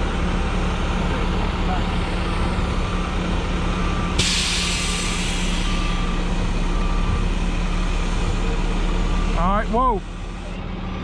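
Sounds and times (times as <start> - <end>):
diesel truck engine running: 0.0 - 11.0
reverse alarm beeping: 1.7 - 11.0
air brakes hissing: 4.1 - 6.6.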